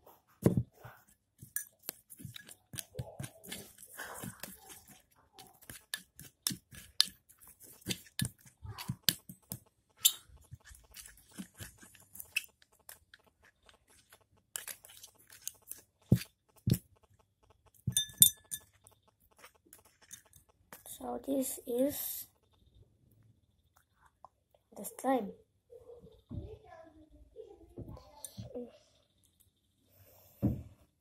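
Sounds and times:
stick scraping glass bowl: 1.4 - 16.3, 17.9 - 20.4.

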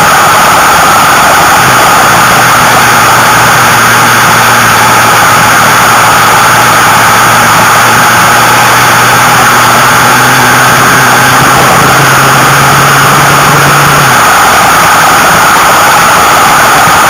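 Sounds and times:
low engine hum: 2.0 - 14.2.

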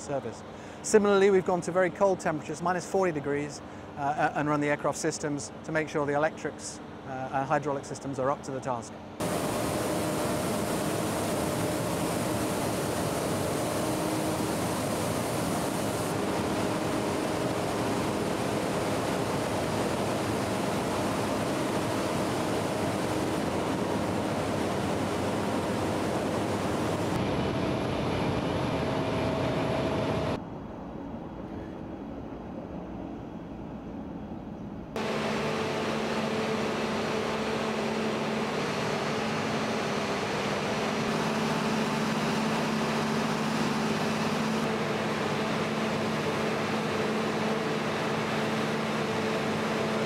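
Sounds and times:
loud roar of machinery: 9.2 - 30.4, 35.0 - 50.0.

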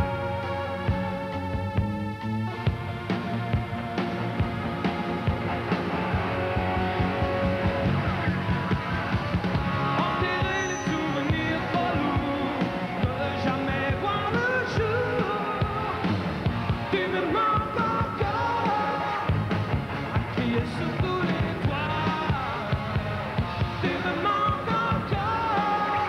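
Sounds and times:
live rock band playing: 0.0 - 26.0
man singing: 9.8 - 16.1, 16.9 - 19.4, 20.2 - 26.0.

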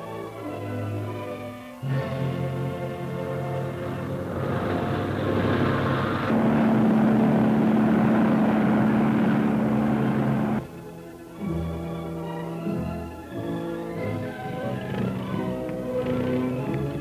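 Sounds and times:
propeller aircraft droning: 0.9 - 17.0
steady low hum: 1.8 - 11.5.

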